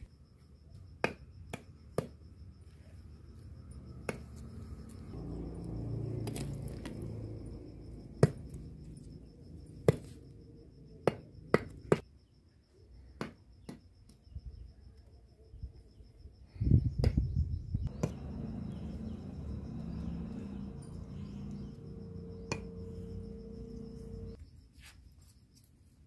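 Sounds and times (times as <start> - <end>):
iron blade chopping on earthen floor: 17.9 - 18.2.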